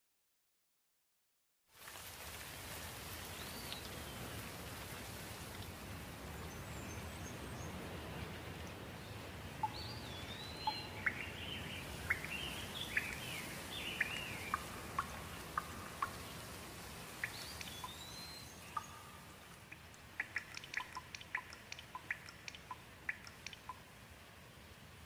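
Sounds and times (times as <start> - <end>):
rain falling on foliage: 1.7 - 25.0
bird chirping: 9.1 - 23.8.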